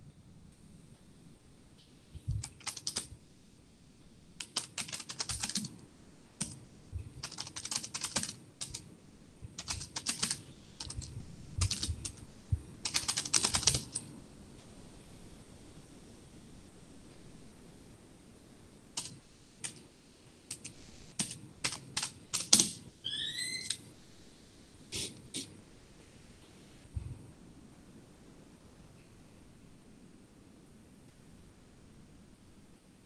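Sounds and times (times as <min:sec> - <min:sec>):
typing on computer keyboard: 0:02.3 - 0:03.1, 0:04.4 - 0:05.8, 0:06.4 - 0:06.6, 0:07.2 - 0:08.9, 0:09.6 - 0:12.2, 0:12.8 - 0:14.1, 0:19.0 - 0:19.8, 0:20.5 - 0:22.8.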